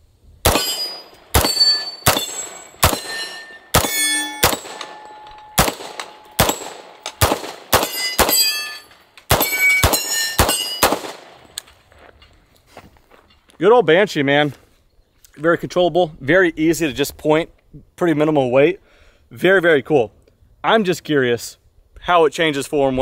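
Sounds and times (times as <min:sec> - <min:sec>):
loud gunshots: 0:00.4 - 0:05.0, 0:05.6 - 0:08.6, 0:09.3 - 0:11.4
steel targets clanging: 0:00.5 - 0:11.6.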